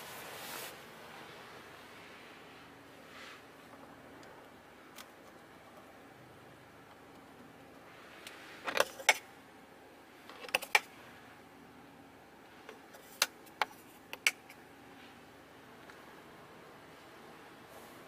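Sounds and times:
plastic covers clicking: 10.3s - 10.9s, 12.9s - 14.6s.

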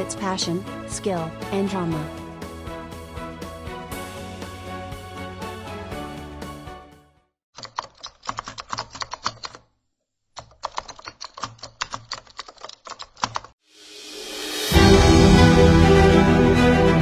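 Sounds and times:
rising whoosh: 13.7s - 16.6s.

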